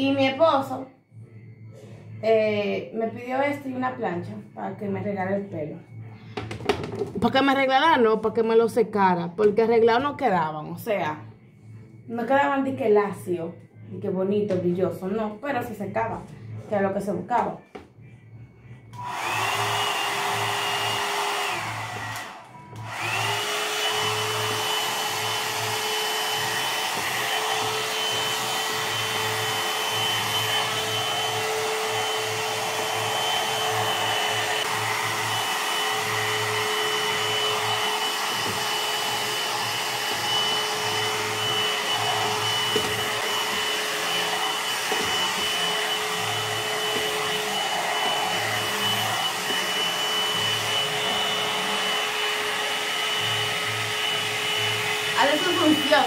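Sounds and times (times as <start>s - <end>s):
hot-air dryer brush blowing: 19.0s - 56.0s.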